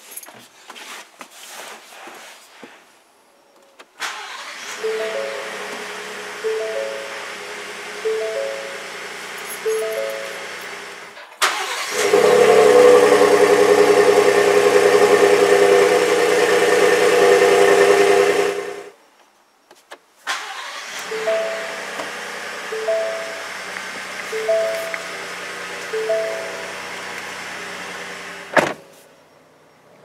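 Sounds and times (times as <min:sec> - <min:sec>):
truck engine starting and running: 0:04.0 - 0:18.9, 0:20.3 - 0:28.7
music: 0:04.8 - 0:05.4, 0:06.4 - 0:07.2, 0:08.0 - 0:08.8, 0:21.1 - 0:21.7, 0:22.7 - 0:23.4, 0:24.3 - 0:25.0, 0:25.9 - 0:26.8.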